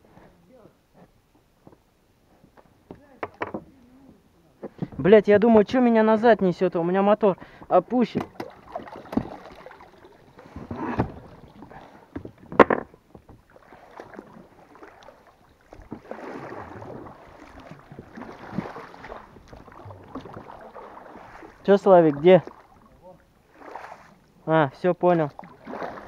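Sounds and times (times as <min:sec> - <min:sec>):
water lapping against boat: 0:07.4 - 0:24.4, 0:25.0 - 0:26.0.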